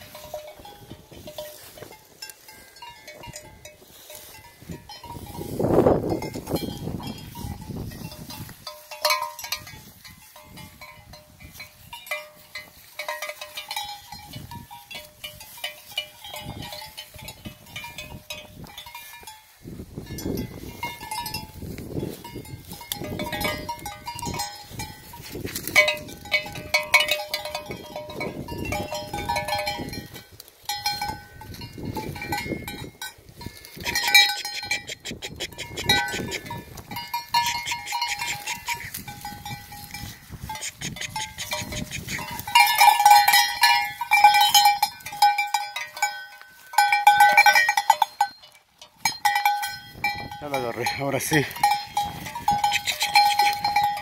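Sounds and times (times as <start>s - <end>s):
sheep bell clanking: 0.0s - 54.0s.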